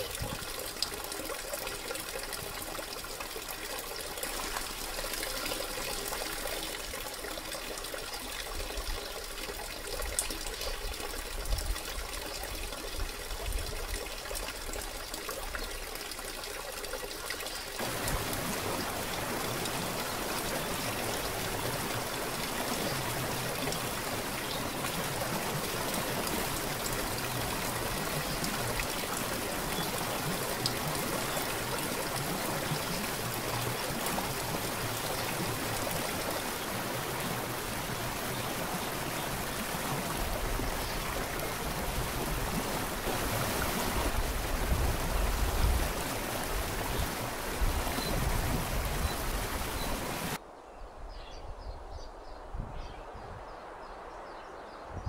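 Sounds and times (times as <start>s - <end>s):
waterfall splashing into pool: 16.2s - 50.4s.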